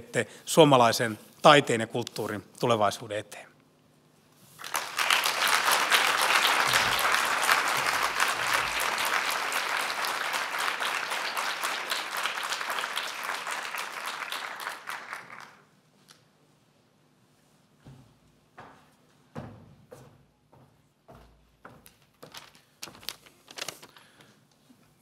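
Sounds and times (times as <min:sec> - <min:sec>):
audience applauding: 0:04.6 - 0:15.7.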